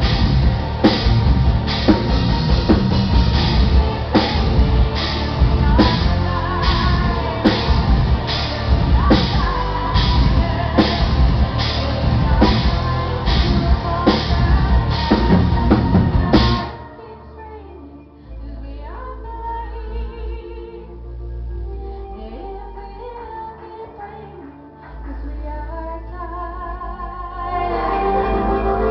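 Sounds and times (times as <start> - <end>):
symphonic metal band playing: 0.0 - 16.8, 27.6 - 28.9
low note: 27.5 - 28.9.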